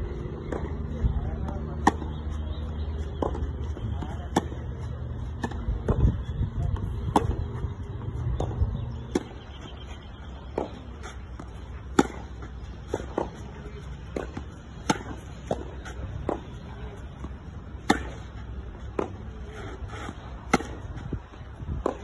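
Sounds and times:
tennis ball hitting racket strings: 10.4s - 16.6s, 17.2s - 19.3s, 20.1s - 20.9s.

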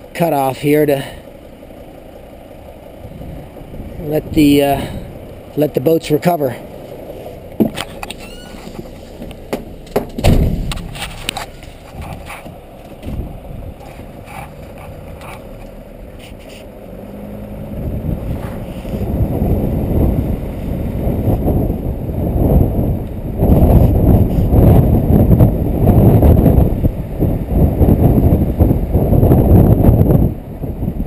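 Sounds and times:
car moving slowly: 0.0s - 31.0s
wind buffeting microphone: 2.8s - 5.5s, 7.0s - 31.0s
sharp knocks: 7.6s - 11.8s.

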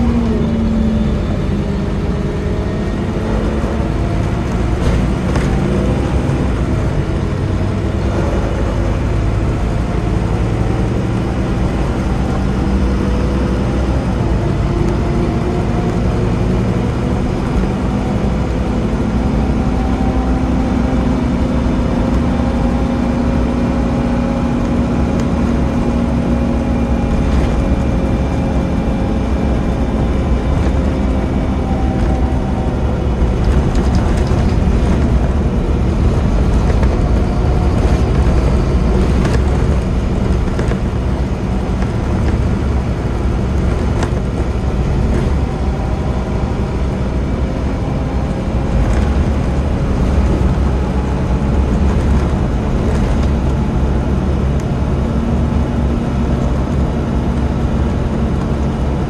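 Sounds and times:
bus diesel engine: 0.0s - 59.0s
road rumble: 0.0s - 59.0s
body rattles: 31.8s - 45.6s.

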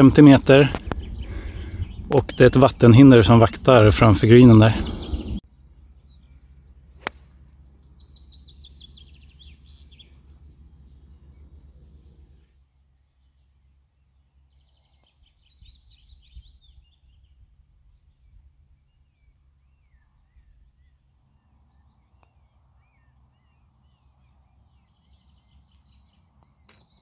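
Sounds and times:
low steady rumble: 0.0s - 14.5s
songbirds singing: 0.0s - 27.0s.

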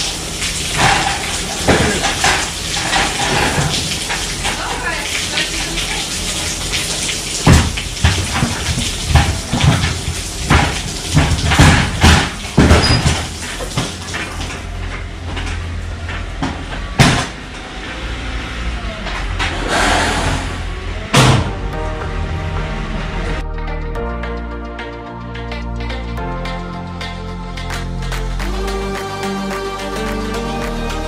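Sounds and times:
knocks and bangs at truck trailer: 7.4s - 14.0s.

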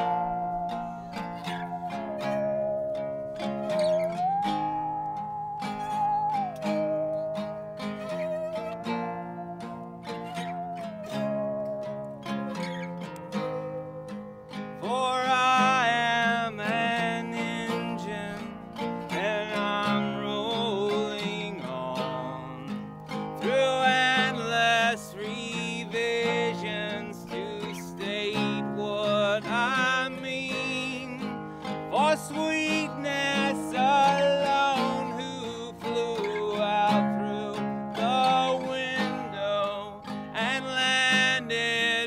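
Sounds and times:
bowed musical saw: 0.0s - 14.8s
strummed acoustic guitar: 0.0s - 42.0s
man singing: 14.8s - 42.0s.

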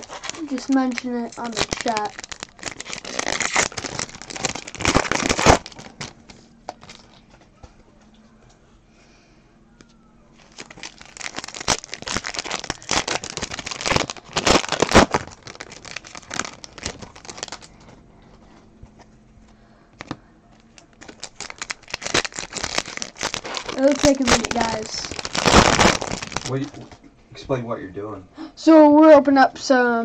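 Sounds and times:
foil wrappers tearing and crinkling: 0.0s - 7.2s, 10.4s - 17.9s, 20.0s - 27.0s.

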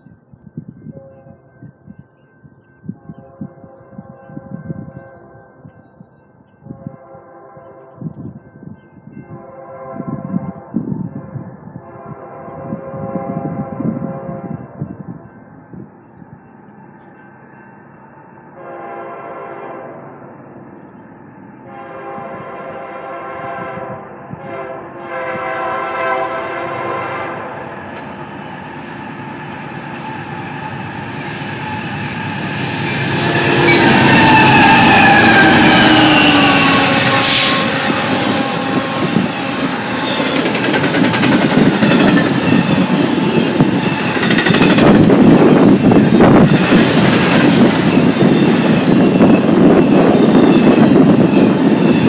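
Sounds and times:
rail cars rumbling and clacking: 0.0s - 52.0s
train horn: 0.9s - 1.6s, 3.0s - 5.8s, 6.6s - 8.3s, 9.2s - 15.3s, 18.5s - 20.3s, 21.6s - 27.7s, 30.0s - 40.6s
diesel locomotives passing: 0.9s - 52.0s.

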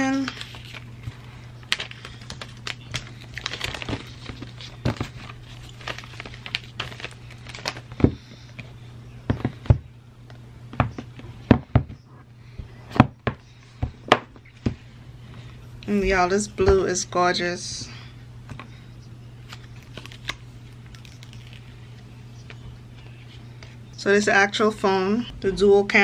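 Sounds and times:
plastic wrap crinkling: 0.0s - 8.4s, 19.4s - 22.0s
low steady hum: 0.0s - 26.0s.

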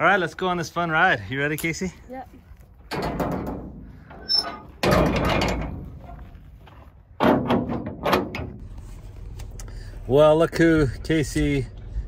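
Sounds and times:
metal trailer door clanging shut: 2.9s - 6.2s, 7.2s - 8.6s.

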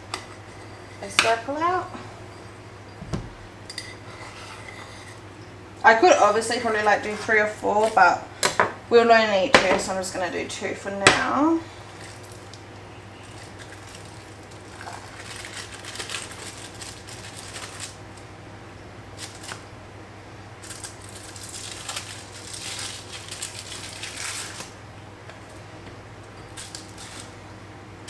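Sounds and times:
steady low hum: 0.0s - 28.0s
sheet rustling and crinkling: 13.3s - 18.2s, 20.6s - 24.8s.

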